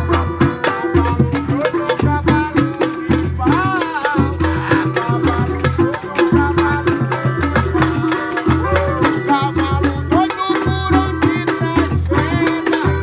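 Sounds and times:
music with drums and percussion: 0.0 - 13.0
repeating bass beat: 7.5 - 9.9.

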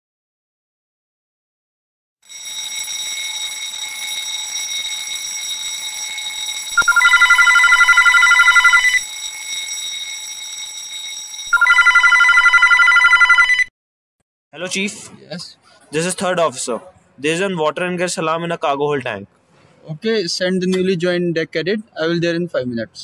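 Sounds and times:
high-pitched electronic alarm tone: 2.2 - 13.7
telephone ringing: 2.2 - 13.7.

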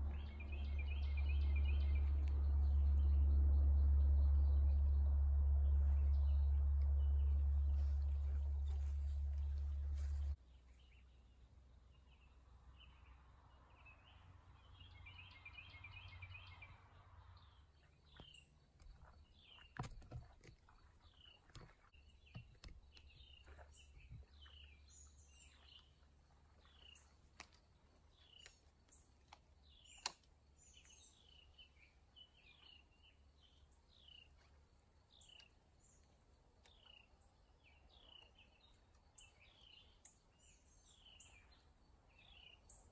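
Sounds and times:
low rumble: 0.0 - 10.4
faint birds chirping: 0.0 - 42.9.

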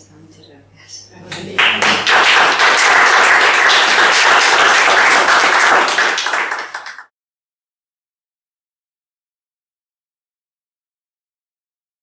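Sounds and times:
audience applauding: 1.3 - 7.1.

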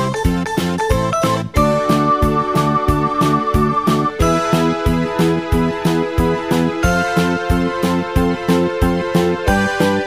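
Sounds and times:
background music with steady beat: 0.0 - 10.0
sustained keyboard chords: 1.6 - 8.2.

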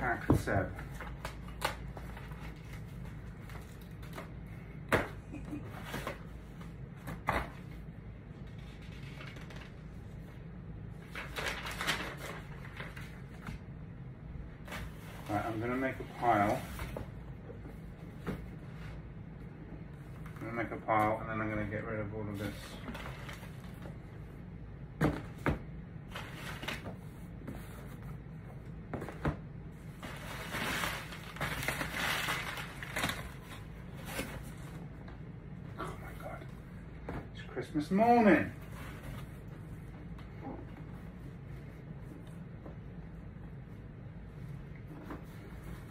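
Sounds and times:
low room hum: 0.0 - 45.9
paper rustling and crinkling: 8.4 - 10.0, 11.0 - 13.6, 22.4 - 24.0, 30.0 - 34.8.

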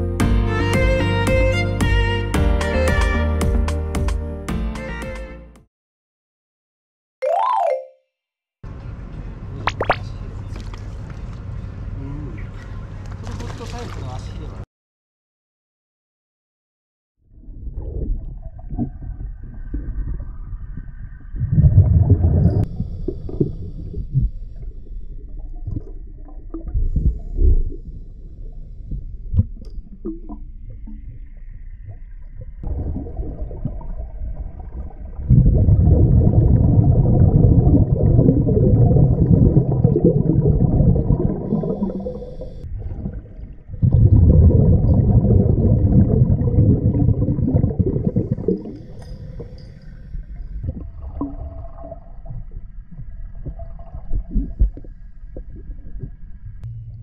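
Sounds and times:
underwater regulator bubbles: 9.7 - 10.0, 17.6 - 27.9, 32.6 - 56.7
murky underwater noise: 17.4 - 57.0.

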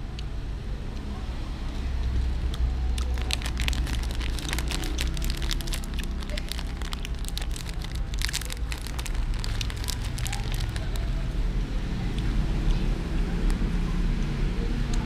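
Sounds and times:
steady low rumble: 1.9 - 15.0
snack bag crinkling: 2.9 - 11.2.

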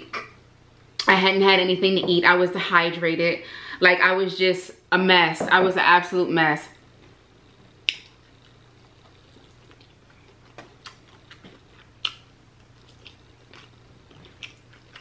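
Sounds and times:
person chewing: 7.8 - 15.0.

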